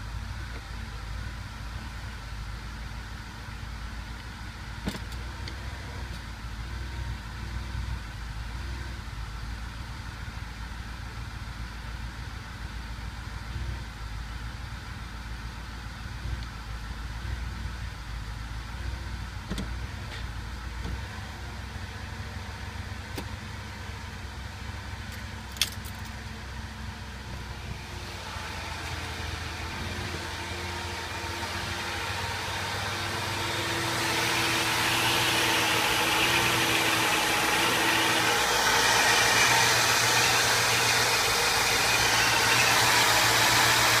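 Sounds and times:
car engine idling: 0.0s - 44.0s.

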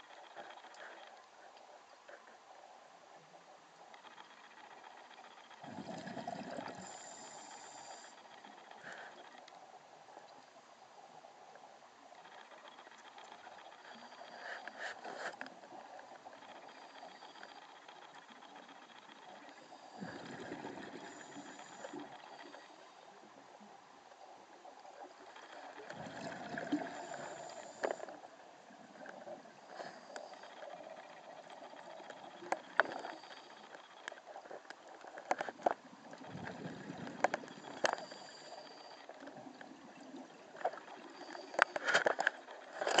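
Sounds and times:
exhaled bubbles underwater: 5.6s - 7.6s, 19.7s - 22.6s, 25.5s - 27.8s, 36.2s - 37.9s.

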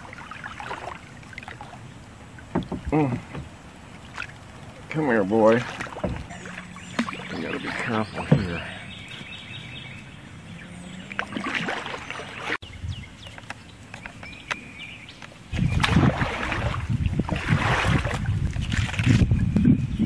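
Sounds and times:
paddle splashes and drips: 0.0s - 9.4s, 11.1s - 12.6s, 15.2s - 19.2s.

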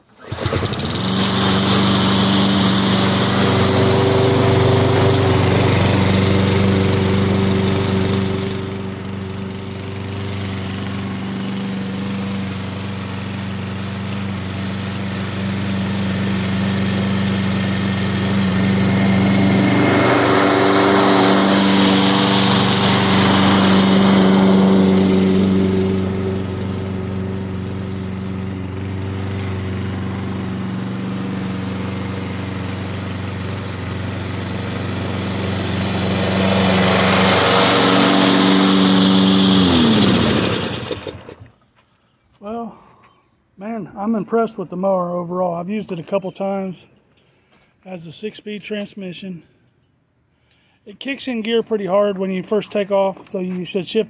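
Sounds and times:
lawn mower engine running: 0.0s - 41.6s.

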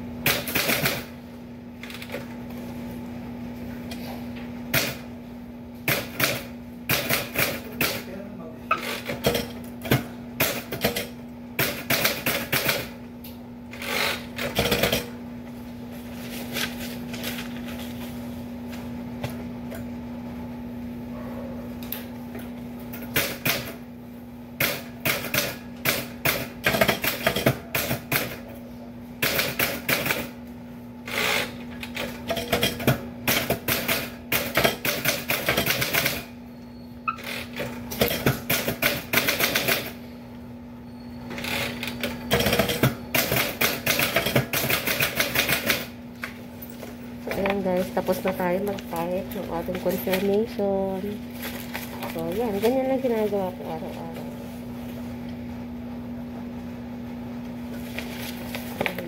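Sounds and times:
steady low hum: 39.8s - 59.0s.

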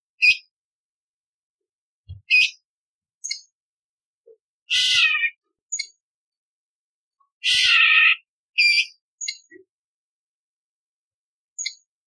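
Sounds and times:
bird harsh rasping calls: 4.7s - 5.9s, 7.4s - 9.0s.

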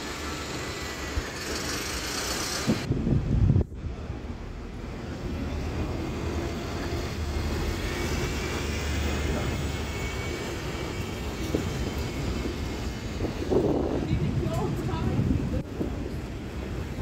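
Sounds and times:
street traffic: 0.0s - 17.0s.

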